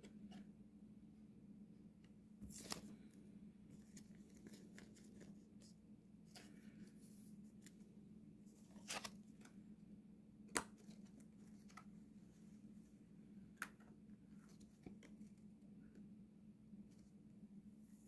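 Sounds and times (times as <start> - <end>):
low steady hum: 0.0 - 18.0
cards and plastic packaging rustling: 2.4 - 3.0, 3.7 - 5.7.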